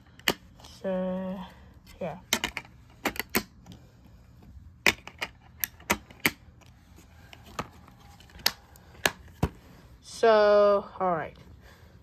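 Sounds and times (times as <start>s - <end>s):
plastic dvd case clicking: 7.4s - 9.6s.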